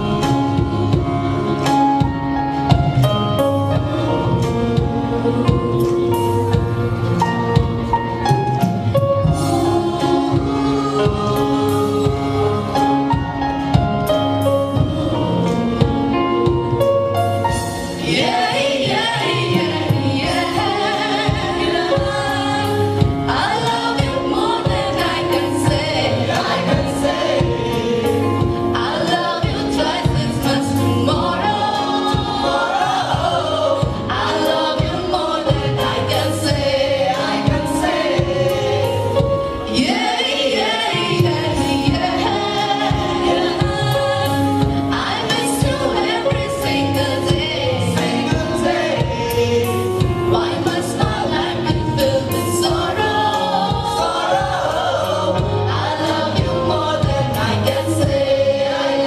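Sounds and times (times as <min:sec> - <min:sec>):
keyboard: 0:00.0 - 0:59.0
mixed choir singing: 0:00.0 - 0:59.0.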